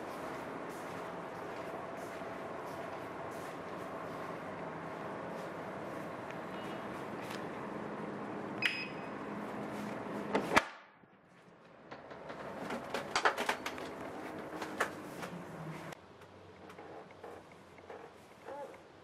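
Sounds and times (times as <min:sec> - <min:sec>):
door lock beep: 0:08.6 - 0:09.2.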